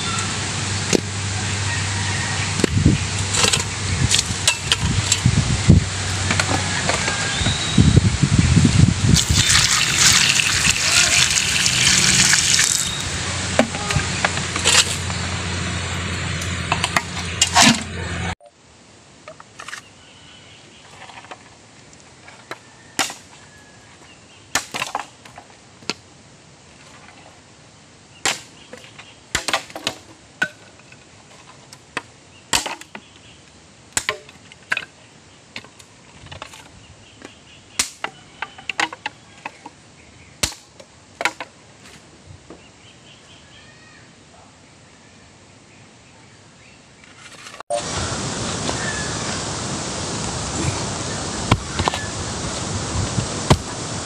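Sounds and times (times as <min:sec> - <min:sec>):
water splashing into metal pot: 0:09.2 - 0:13.0
knife chopping wood: 0:53.5 - 0:53.7.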